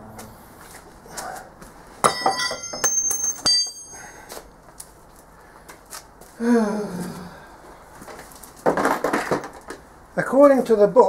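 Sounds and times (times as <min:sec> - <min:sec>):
ringing metal strikes: 0:02.0 - 0:04.2
man groaning: 0:06.4 - 0:07.4.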